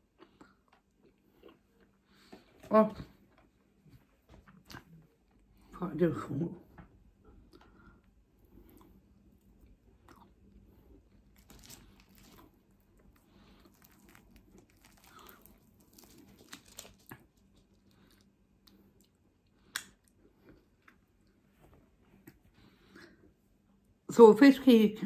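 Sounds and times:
chewing: 0:00.2 - 0:02.5, 0:04.4 - 0:05.5, 0:07.5 - 0:21.4
crackles of food torn apart: 0:11.2 - 0:20.1.

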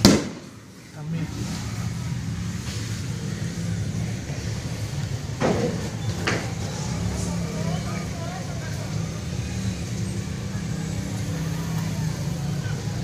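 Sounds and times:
sharp bangs: 0:00.0 - 0:00.6
motorcycle engines running: 0:00.0 - 0:13.0.

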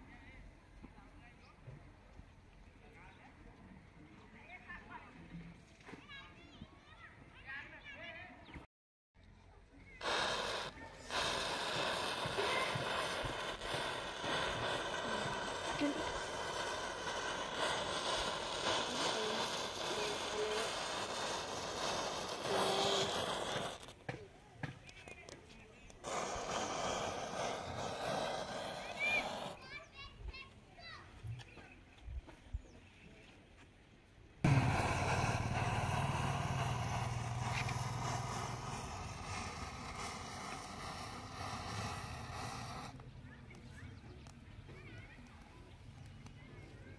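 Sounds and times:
matches hissing and crackling: 0:10.0 - 0:30.0, 0:34.5 - 0:43.6
motor engine humming: 0:34.5 - 0:42.9.

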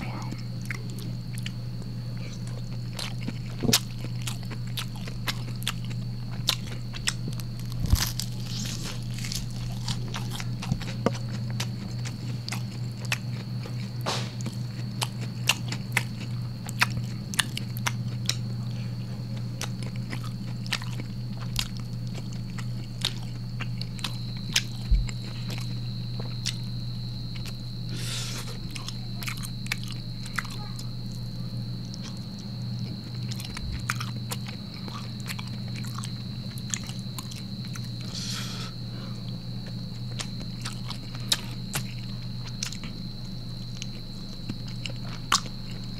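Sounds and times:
faint high whine: 0:00.0 - 0:45.9
steady low hum: 0:00.0 - 0:45.9
wet chewing and mouth clicks: 0:02.4 - 0:18.5, 0:19.6 - 0:26.7, 0:28.7 - 0:30.6, 0:32.8 - 0:38.0, 0:39.6 - 0:43.0, 0:43.7 - 0:45.9.

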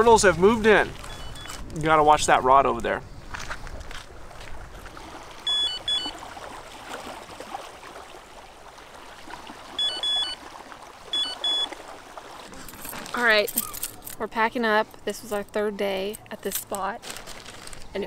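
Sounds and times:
bite alarm high beeps: 0:01.1 - 0:01.6, 0:05.5 - 0:06.2, 0:09.8 - 0:10.4, 0:11.1 - 0:11.8
lapping water: 0:04.3 - 0:14.1.

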